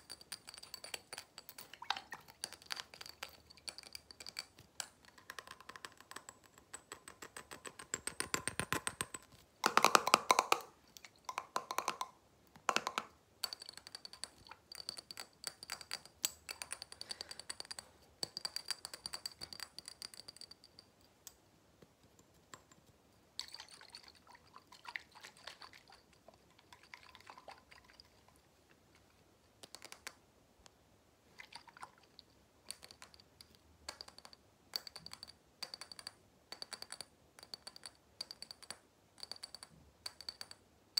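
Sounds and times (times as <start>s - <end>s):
fingernails tapping glass jar: 0.0s - 20.8s.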